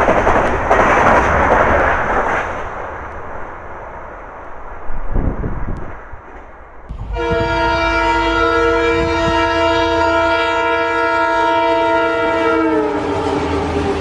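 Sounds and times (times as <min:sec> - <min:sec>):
train coaches rushing and rattling: 0:00.0 - 0:14.0
train horn long blast: 0:06.9 - 0:14.0.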